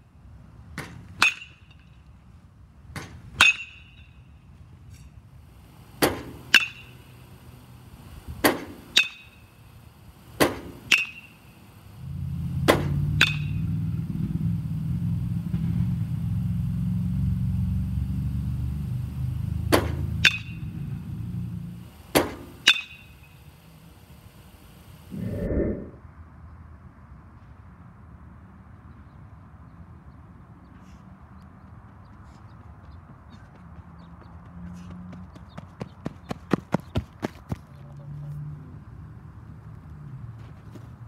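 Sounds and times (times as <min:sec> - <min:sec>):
metal bat hitting ball: 0:03.4 - 0:04.1, 0:06.0 - 0:07.0, 0:08.4 - 0:09.4, 0:10.4 - 0:11.3, 0:12.6 - 0:13.6, 0:19.7 - 0:20.8, 0:22.1 - 0:23.1
low rumble: 0:25.1 - 0:26.0.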